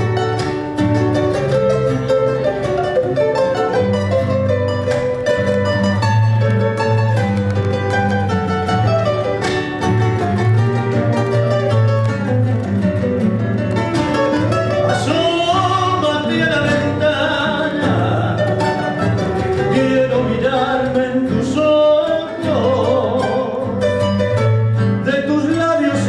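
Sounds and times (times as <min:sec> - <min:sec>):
classical guitars playing: 0:00.0 - 0:26.0
man singing: 0:14.8 - 0:24.3, 0:25.0 - 0:26.0.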